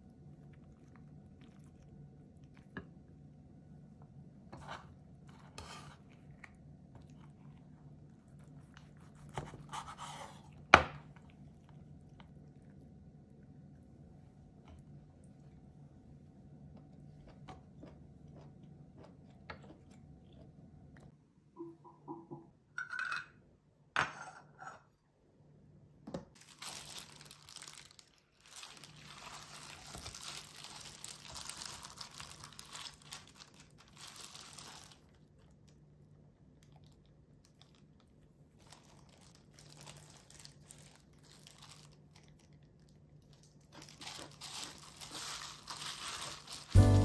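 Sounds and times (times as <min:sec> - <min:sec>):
plastic glove crinkling: 0:26.3 - 0:35.7, 0:36.6 - 0:47.0.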